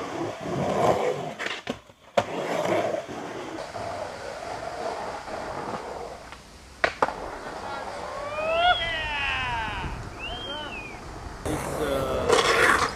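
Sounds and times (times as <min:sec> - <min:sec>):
skateboard wheels rolling on concrete: 0:00.0 - 0:12.9
skateboard clacking on ground: 0:05.3 - 0:08.2, 0:11.6 - 0:12.9.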